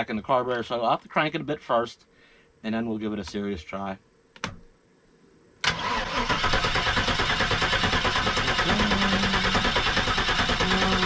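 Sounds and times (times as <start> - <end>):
engine cranking with starter: 5.6 - 11.0.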